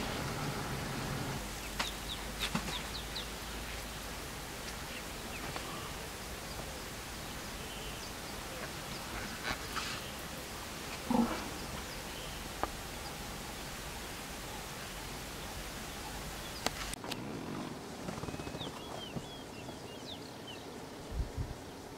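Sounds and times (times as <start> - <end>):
steady hiss: 0.0 - 17.0.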